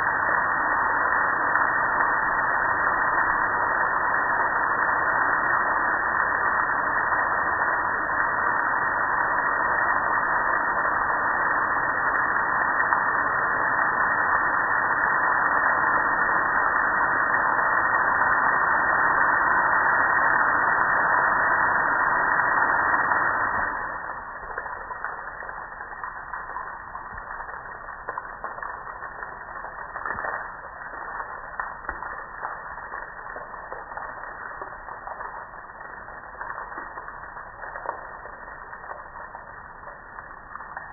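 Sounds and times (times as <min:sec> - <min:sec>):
water dripping and trickling: 0:00.0 - 0:40.9
water spraying onto a grill: 0:19.2 - 0:40.9.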